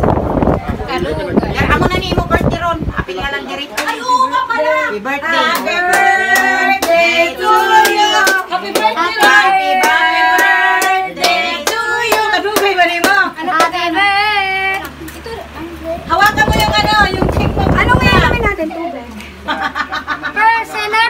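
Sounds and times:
voices singing together: 0:04.0 - 0:15.0
hand claps beat: 0:07.8 - 0:13.8.

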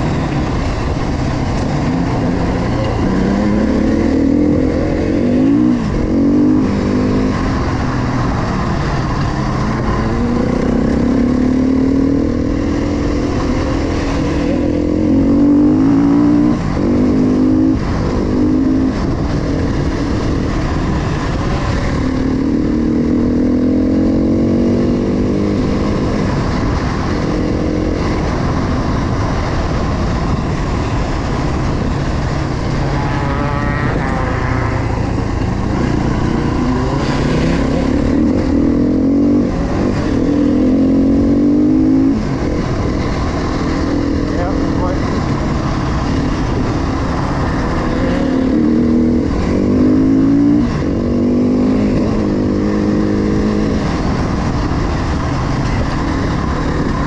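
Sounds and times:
dirt bike engine revving: 0:32.2 - 0:54.1.

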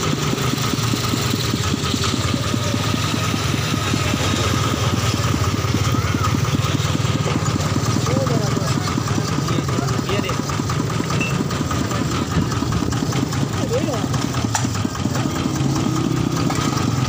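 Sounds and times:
engine running with rapid beat: 0:00.0 - 0:17.0.

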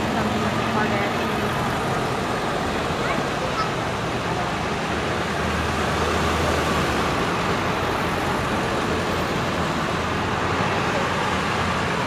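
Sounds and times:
vehicles driving past: 0:00.0 - 0:12.0.

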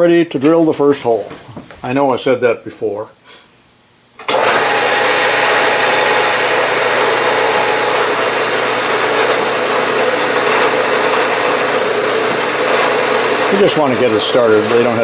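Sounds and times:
milling machine spindle humming: 0:04.3 - 0:15.0.

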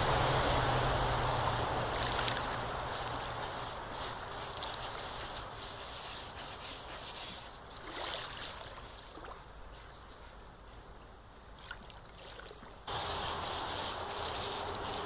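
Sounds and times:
outdoor rushing noise: 0:00.0 - 0:06.0, 0:12.9 - 0:15.0
dog paws scraping sand: 0:00.6 - 0:09.0, 0:12.9 - 0:15.0.

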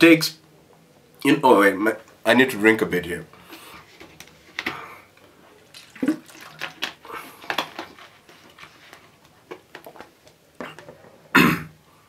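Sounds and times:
person gulping and swallowing: 0:05.6 - 0:07.6, 0:10.6 - 0:11.7.

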